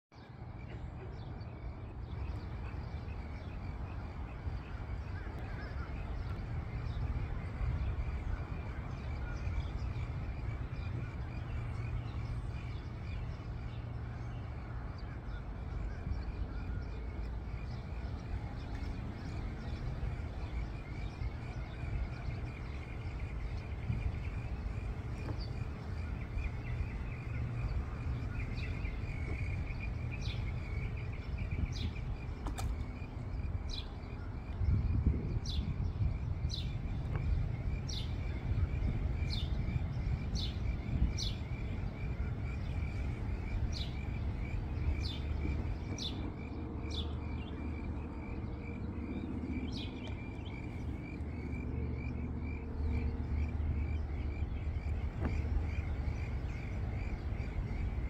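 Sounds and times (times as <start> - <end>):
steady low rumble: 0.2 - 58.0.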